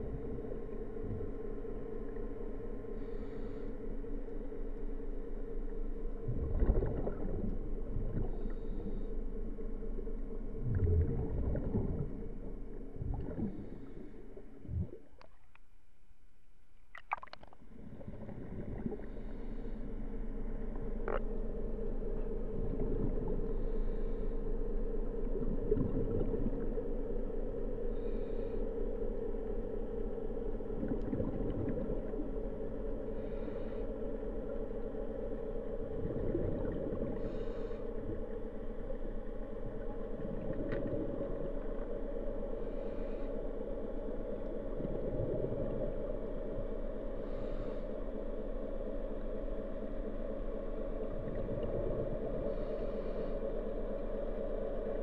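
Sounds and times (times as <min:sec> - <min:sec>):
underwater low hum: 0:00.0 - 0:55.0.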